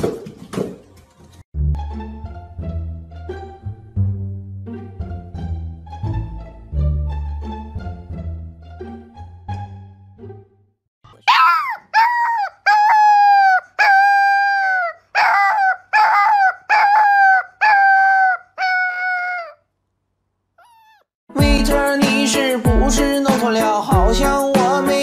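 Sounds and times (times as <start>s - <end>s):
music: 0.0s - 10.8s, 21.3s - 25.0s
puppy howling: 11.3s - 19.6s, 20.6s - 21.1s.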